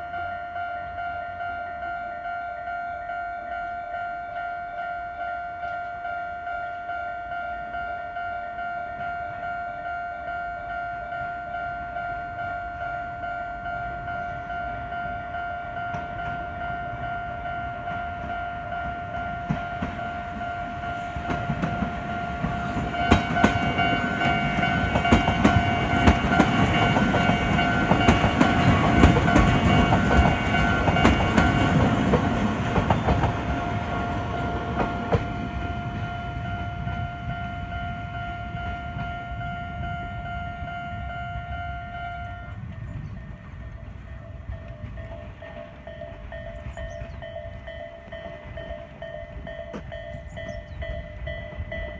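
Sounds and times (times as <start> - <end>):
level crossing alarm tone: 0.0 - 42.6
train rumbling past: 0.0 - 51.9
wheels clacking over rail joints: 15.7 - 40.0, 42.5 - 51.9.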